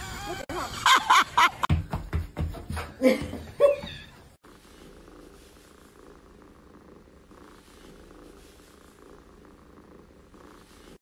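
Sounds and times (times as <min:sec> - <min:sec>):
cat purring: 0:04.4 - 0:11.0.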